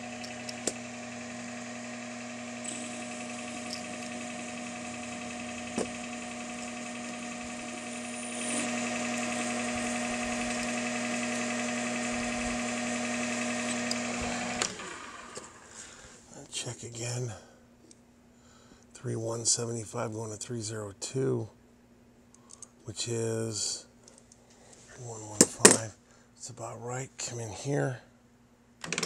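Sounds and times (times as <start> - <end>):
lathe tool cutting metal: 0.0 - 15.4
metal lathe whining: 0.0 - 15.7.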